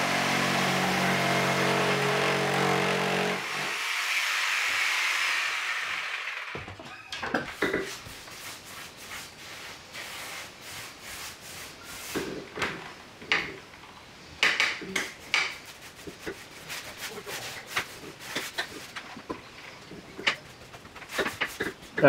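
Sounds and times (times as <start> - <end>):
paintbrush scratching on wood: 15.6 - 18.9.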